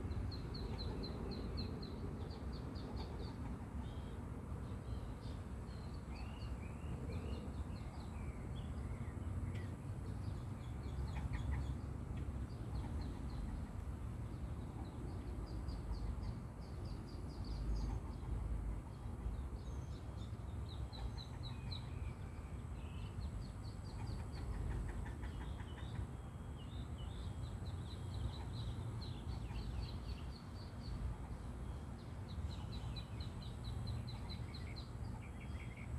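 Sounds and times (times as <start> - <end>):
steady low rumble: 0.0 - 35.9
ducklings peeping: 20.7 - 26.1.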